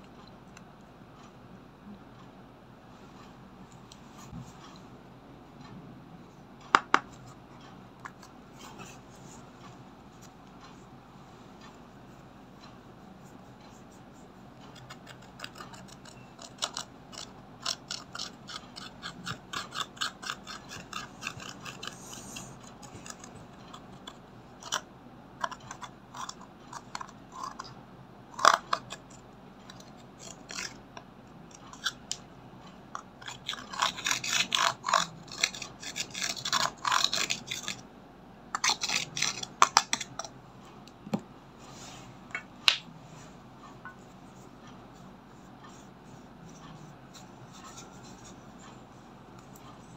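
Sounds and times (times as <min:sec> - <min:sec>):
tool scraping powder: 0:14.7 - 0:24.8.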